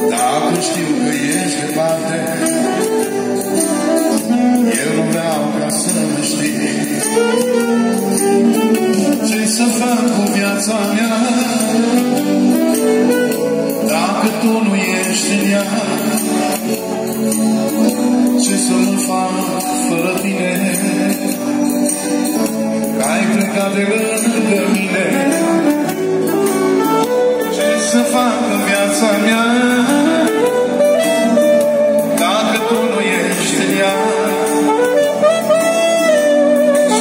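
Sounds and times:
live band playing slow dance song: 0.0s - 37.0s.

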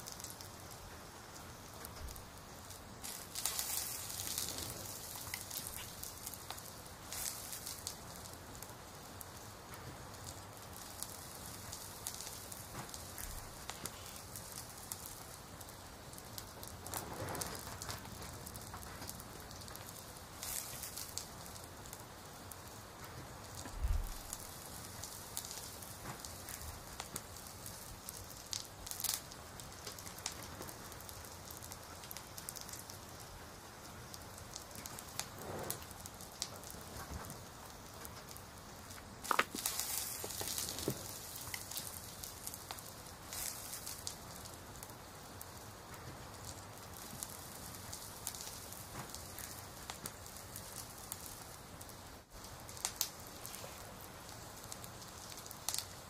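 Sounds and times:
crackling pattering background: 0.0s - 56.0s
paper notebooks rustling and tapping: 39.2s - 41.0s.

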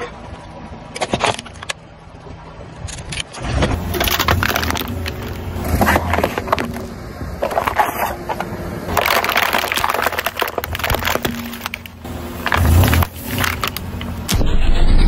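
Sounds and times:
tyre crushing plastic packaging: 3.8s - 8.2s, 8.9s - 14.3s.

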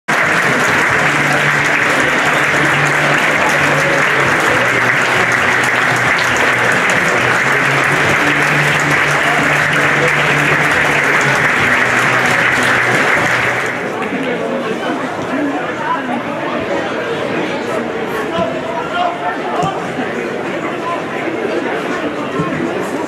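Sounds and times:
music playing: 0.1s - 14.0s
crowd clapping: 0.1s - 14.4s.

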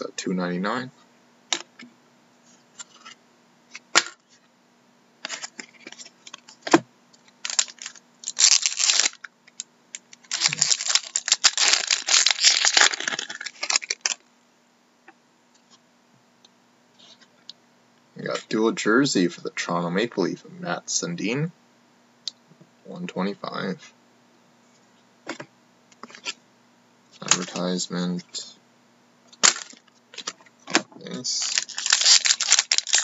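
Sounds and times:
foil card pack tearing and crinkling: 7.4s - 9.3s, 10.2s - 14.2s, 29.4s - 30.3s, 31.2s - 33.0s.

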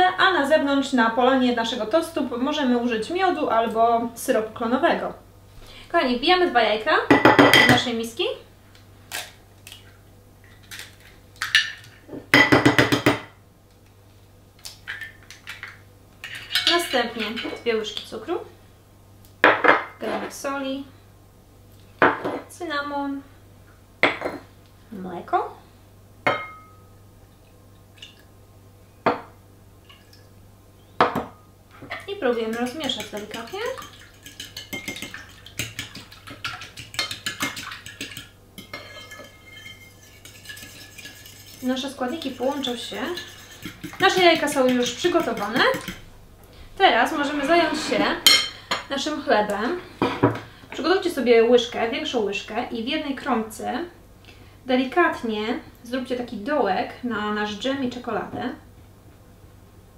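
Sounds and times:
eggs clinking against a bowl: 31.9s - 46.0s.

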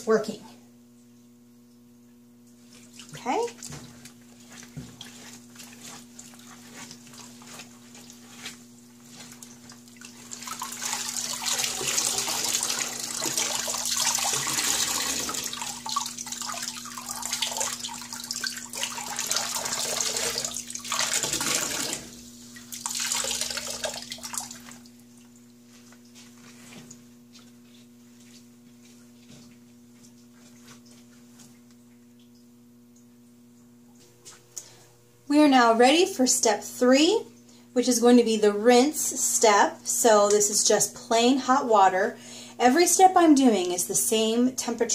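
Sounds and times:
water splashing into steel sink: 10.0s - 24.9s.

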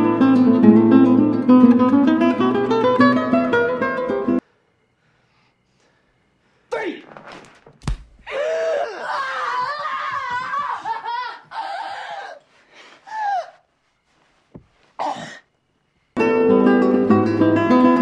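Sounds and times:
acoustic guitar music: 0.0s - 4.4s, 16.2s - 18.0s
woman gasping and crying out: 8.2s - 9.3s, 10.8s - 13.6s.

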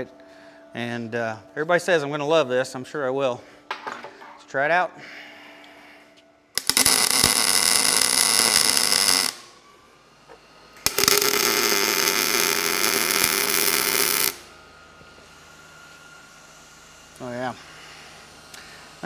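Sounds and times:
welding arc buzzing: 6.5s - 19.0s.

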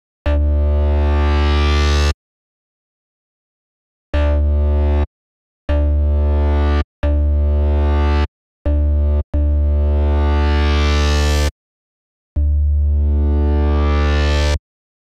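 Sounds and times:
synthesizer bass notes: 4.2s - 5.1s, 5.7s - 11.5s, 12.4s - 14.6s.

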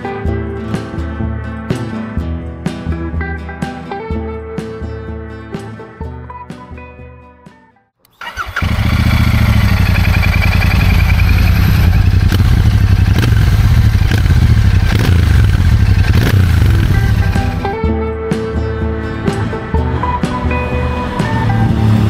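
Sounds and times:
motorcycle engine starting and running: 8.1s - 17.8s.

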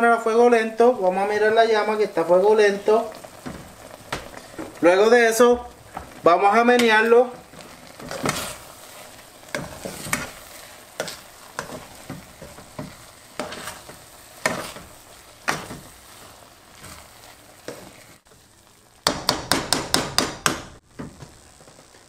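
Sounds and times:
faint sizzle: 0.0s - 22.0s
spoon scraping rice in pot: 7.9s - 14.9s.

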